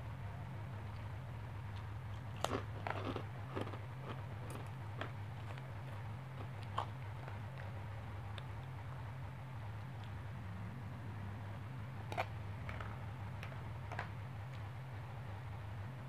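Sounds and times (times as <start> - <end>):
steady low hum: 0.0 - 16.0
mouth chewing food: 0.9 - 9.0
crisp crunches and clicks: 1.7 - 8.8.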